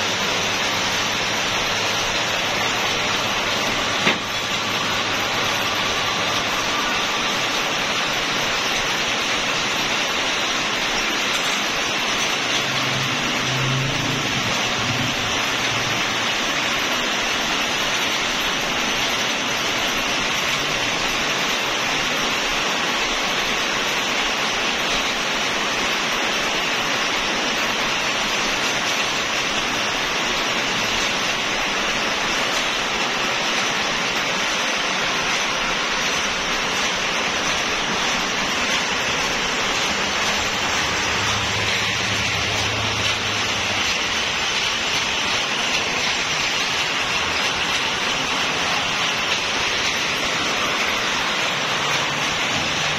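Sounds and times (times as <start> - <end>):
workshop machinery running: 0.0 - 52.9.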